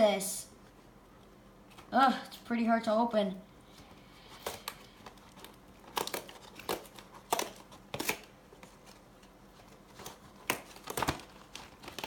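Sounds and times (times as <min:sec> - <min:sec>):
card packaging crinkling and tearing: 0:04.2 - 0:12.0.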